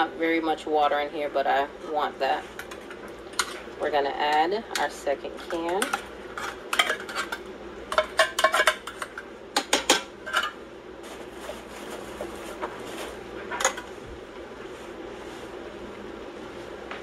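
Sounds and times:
metal spoon scraping and clinking: 5.4 - 7.4.

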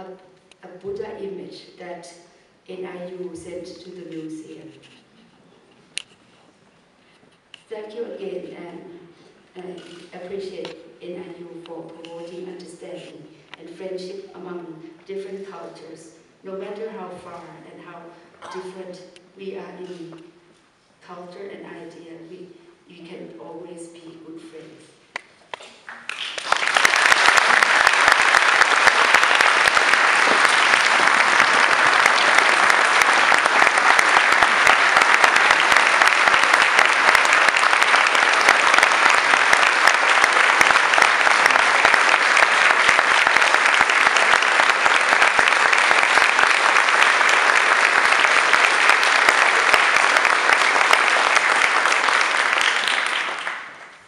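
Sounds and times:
large audience applauding: 25.6 - 54.0.

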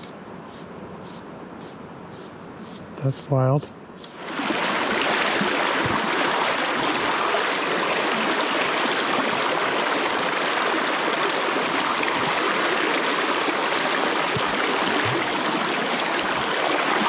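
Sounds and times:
stream water flowing over rocks: 4.1 - 17.0.

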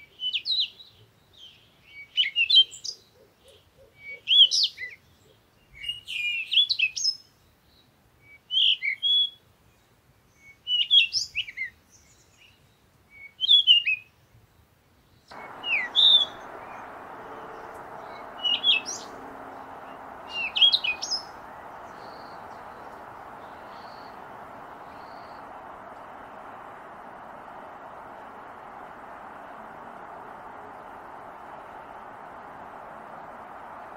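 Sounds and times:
outdoor background hiss: 15.3 - 33.9
songbird chirping: 15.3 - 33.9.

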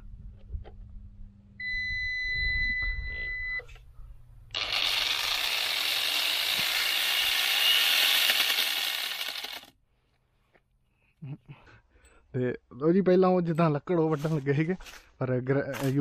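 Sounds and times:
long electronic beep: 1.6 - 3.6.

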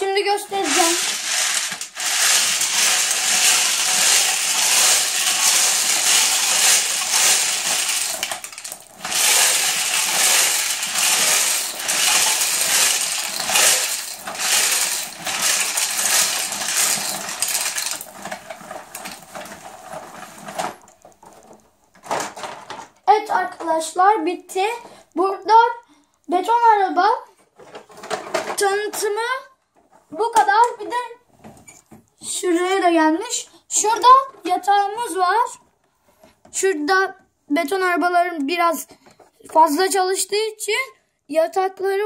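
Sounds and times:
dried beans rattling in plastic drum: 0.1 - 23.0.

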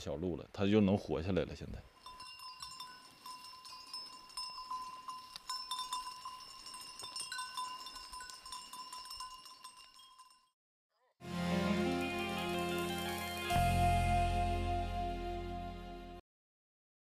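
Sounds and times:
metal animal bell ringing: 1.9 - 10.6.

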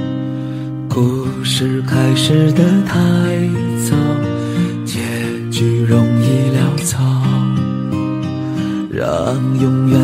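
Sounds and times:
plucked guitar over held chords: 0.0 - 10.0.

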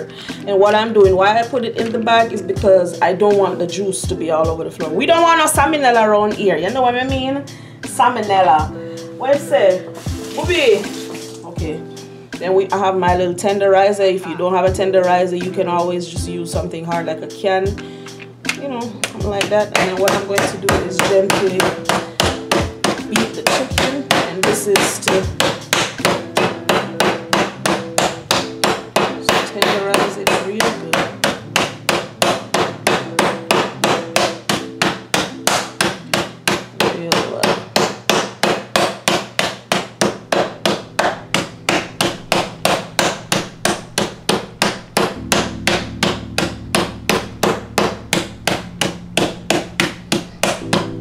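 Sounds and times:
mallet pounding meat on board: 19.0 - 51.0.

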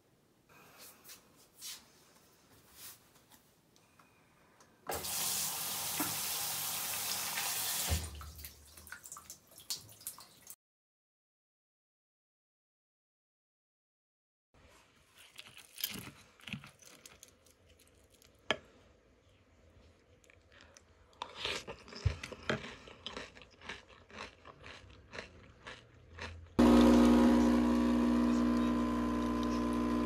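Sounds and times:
spoon crunching through cereal: 15.1 - 18.4, 21.2 - 26.8
coffee machine pump humming: 26.6 - 30.0.

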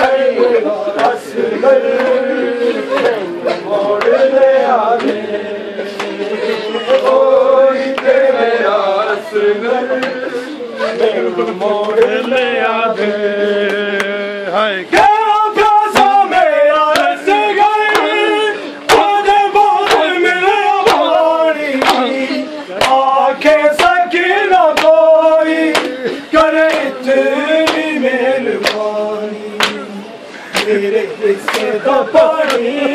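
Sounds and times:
men chanting: 0.0 - 32.9
hands slapping on chests: 25.7 - 26.0, 27.6 - 27.9, 29.6 - 29.8, 30.5 - 30.8, 31.5 - 31.8.

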